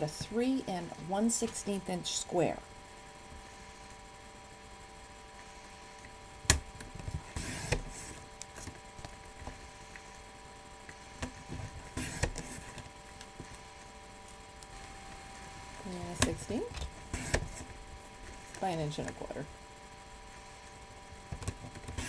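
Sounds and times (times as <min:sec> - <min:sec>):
paper trimmer scraping rustle: 0:07.2 - 0:08.2, 0:11.4 - 0:12.8.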